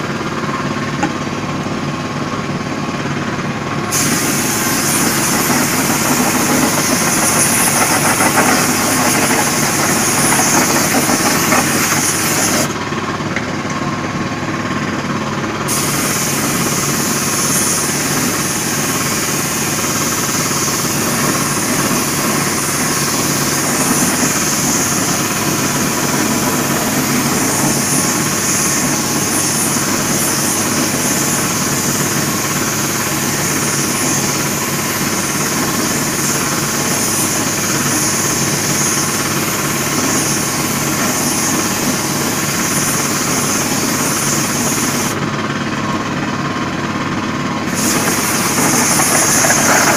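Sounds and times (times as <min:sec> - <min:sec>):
air compressor running: 0:00.0 - 0:49.9
spray gun hissing: 0:03.9 - 0:12.8, 0:15.7 - 0:45.2, 0:47.7 - 0:49.9.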